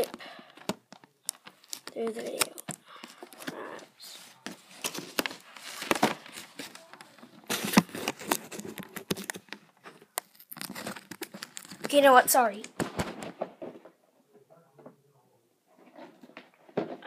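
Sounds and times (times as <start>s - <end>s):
plastic crinkling: 0.0s - 13.8s.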